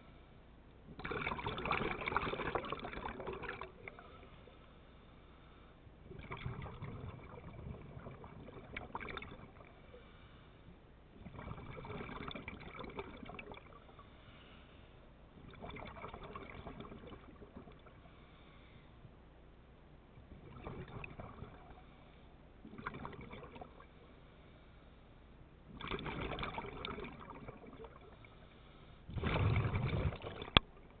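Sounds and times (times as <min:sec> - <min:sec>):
scuba exhaled bubbles: 0:00.9 - 0:04.3, 0:06.1 - 0:09.9, 0:11.2 - 0:14.0, 0:15.4 - 0:18.0, 0:20.2 - 0:22.0, 0:22.6 - 0:23.9, 0:25.7 - 0:28.4, 0:29.1 - 0:31.0.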